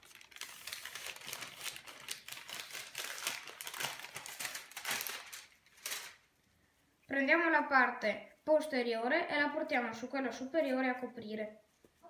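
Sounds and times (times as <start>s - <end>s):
parchment paper rustling and crinkling: 0.0s - 6.4s.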